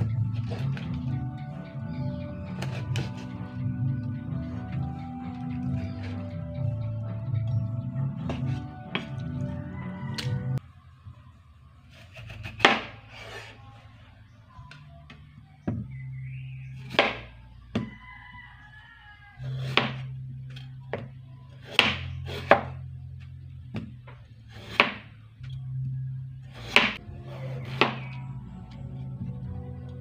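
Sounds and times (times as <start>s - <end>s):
soft background music: 0.0s - 10.9s, 13.9s - 30.0s
knife chopping on cutting board: 19.6s - 20.0s, 21.6s - 22.8s, 24.6s - 25.0s, 26.7s - 27.0s, 27.6s - 28.1s.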